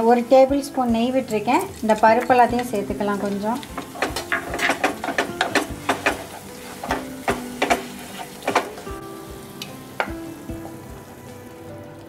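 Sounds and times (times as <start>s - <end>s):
ghee frying: 0.0s - 12.0s
soft background music: 0.0s - 12.0s
wooden spatula scraping frying pan: 2.5s - 8.9s.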